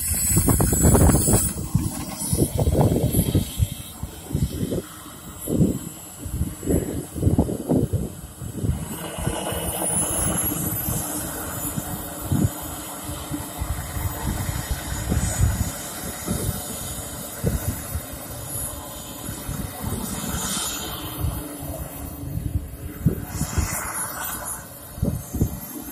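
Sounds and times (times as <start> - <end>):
jet turbine whining: 0.0 - 25.9
wind buffeting microphone: 0.0 - 25.9.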